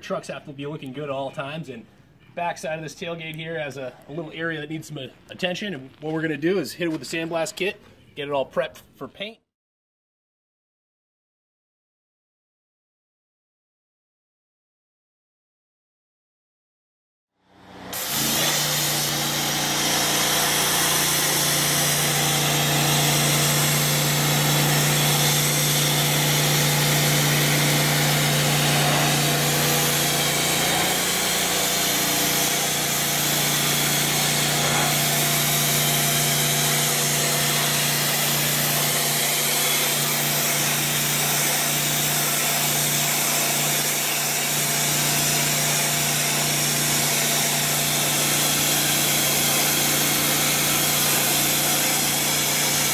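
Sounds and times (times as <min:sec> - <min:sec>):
pressure washer hum: 0:17.6 - 0:52.9
water jet hissing: 0:18.0 - 0:43.0.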